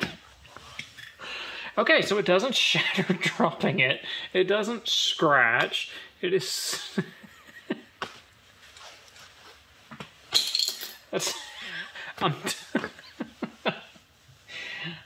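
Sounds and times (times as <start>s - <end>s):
man laughing: 2.7s - 4.0s, 6.6s - 8.0s, 11.2s - 14.0s.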